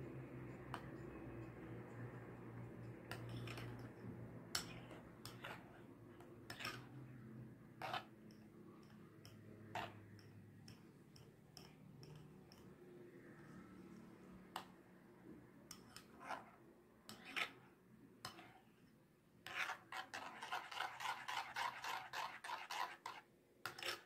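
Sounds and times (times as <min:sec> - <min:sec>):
faint low hum: 0:00.0 - 0:19.2.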